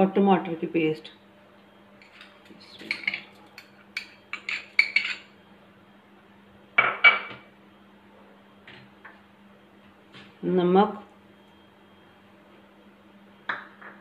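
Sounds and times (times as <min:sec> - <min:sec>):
spoon scraping a bowl: 0:02.0 - 0:05.3.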